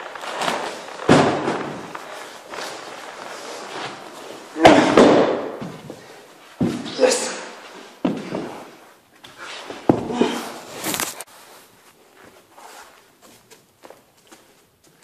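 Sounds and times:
heavy thuds on the floor: 1.1 - 2.0, 4.6 - 7.0, 9.8 - 10.4.

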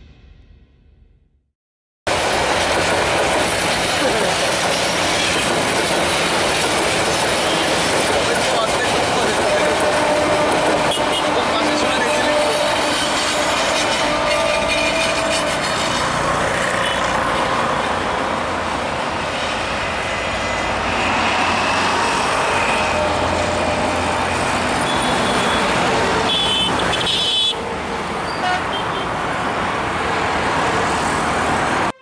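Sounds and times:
passing train rumble: 2.1 - 32.0
road traffic noise: 2.1 - 32.0
high horn toot: 9.5 - 17.2, 24.8 - 27.7, 28.3 - 29.1, 31.8 - 32.0.

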